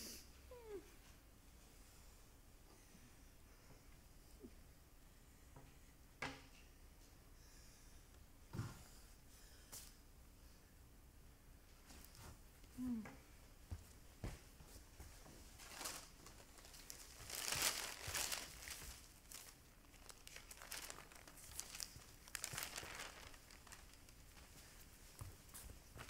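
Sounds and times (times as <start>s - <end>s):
paper rustling and crinkling: 15.5s - 26.0s.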